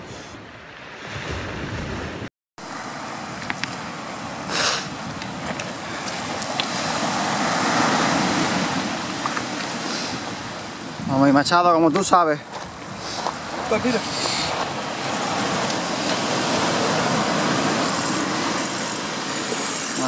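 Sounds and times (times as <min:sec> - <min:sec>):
surf washing up pebble beach: 0:02.6 - 0:20.0
wind on microphone: 0:12.5 - 0:19.9.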